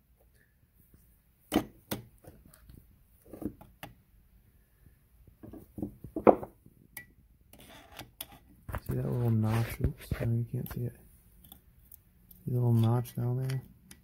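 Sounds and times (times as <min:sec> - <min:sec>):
light knocks and clicks of metal parts: 0:10.0 - 0:14.0.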